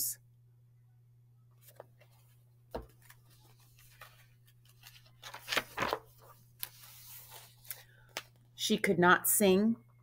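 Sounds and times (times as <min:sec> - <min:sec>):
page turning paper rustle: 0:01.6 - 0:08.4
book thump: 0:02.7 - 0:03.2.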